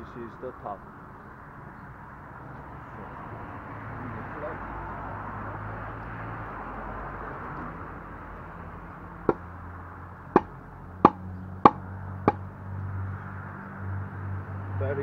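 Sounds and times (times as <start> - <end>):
metal pole knocking on ground: 10.4 - 12.4.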